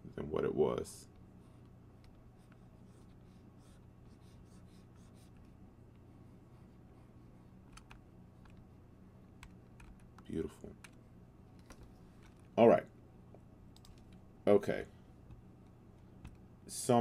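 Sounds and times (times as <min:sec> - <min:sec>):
low steady hum: 0:00.0 - 0:17.0
faint scratchy pen strokes: 0:02.3 - 0:05.5, 0:06.1 - 0:07.6
soft clicks: 0:13.3 - 0:14.2.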